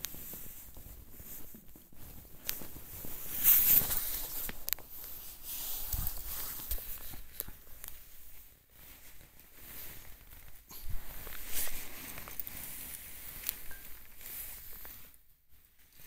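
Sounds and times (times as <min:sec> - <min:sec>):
hissing rustle: 0:00.1 - 0:15.2
light scrapes and clicks: 0:02.4 - 0:08.2.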